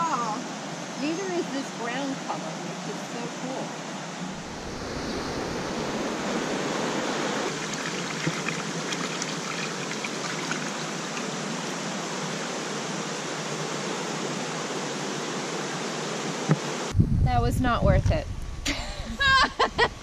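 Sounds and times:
water rushing over rocks: 4.3 - 12.0
water pouring from a pipe: 7.5 - 11.3
water splashing into a pool: 7.5 - 11.4.

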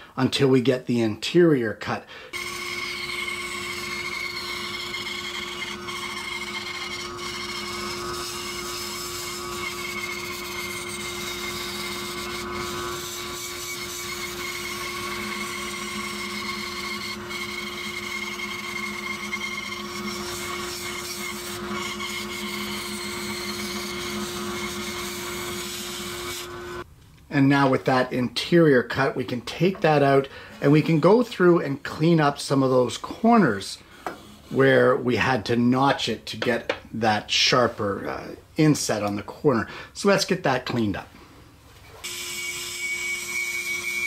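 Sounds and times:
bandsaw cutting wood: 2.3 - 26.8, 42.0 - 44.0.

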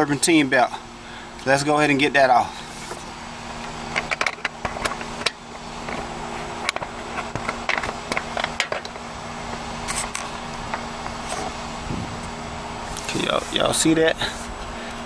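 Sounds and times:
steady low hum: 0.0 - 15.0
tools clicking and knocking: 3.9 - 6.0.

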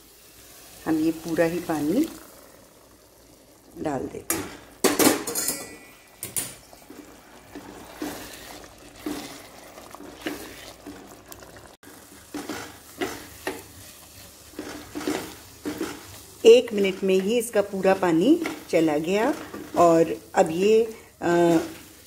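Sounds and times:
spatula scraping wet food in pan: 6.8 - 20.2.

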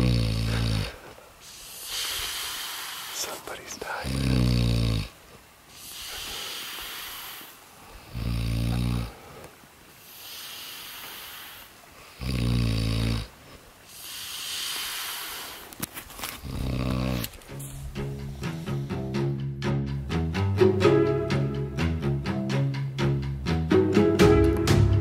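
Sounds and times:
hissing breath out: 0.0 - 3.4, 5.7 - 12.3, 13.4 - 19.1
man snoring: 0.0 - 5.2, 5.8 - 9.3, 10.1 - 15.7, 16.4 - 17.4.

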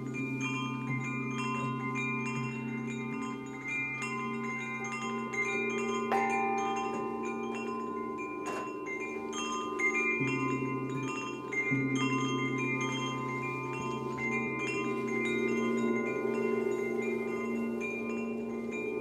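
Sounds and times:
deep sustained ringing tone: 0.0 - 19.0
metal chimes ringing: 0.0 - 19.0.

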